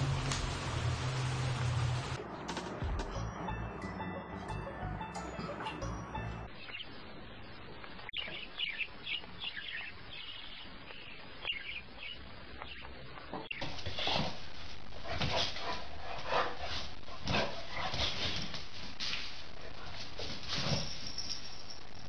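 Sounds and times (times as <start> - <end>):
pet bird chirping: 8.0 - 13.6.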